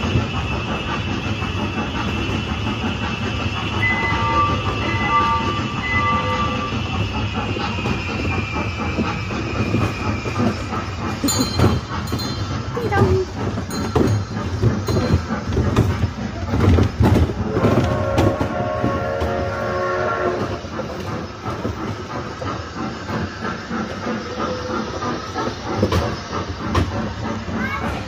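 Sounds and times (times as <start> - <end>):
train low rumble: 0.0 - 28.0
train whistle: 3.6 - 6.9, 17.5 - 20.6.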